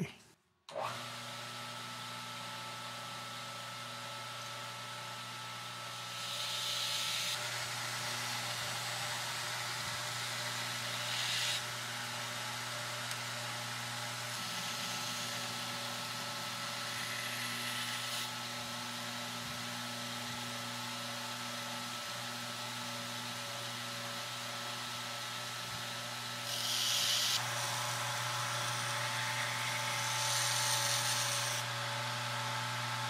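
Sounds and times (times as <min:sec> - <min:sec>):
belt grinder motor running: 0:06.1 - 0:18.3, 0:26.4 - 0:33.0.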